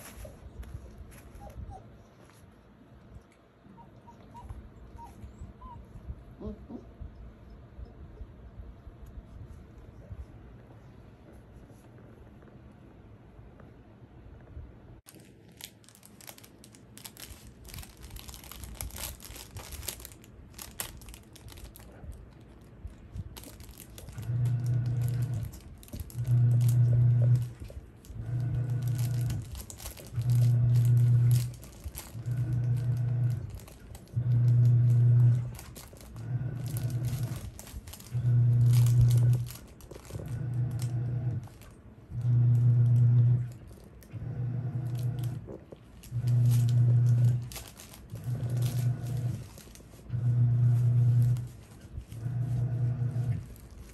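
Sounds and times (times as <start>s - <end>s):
plastic pad crinkling: 0.0s - 2.6s, 15.0s - 53.9s
puppy gnawing a plush toy: 14.3s - 53.9s
pulsing low hum: 17.1s - 53.9s.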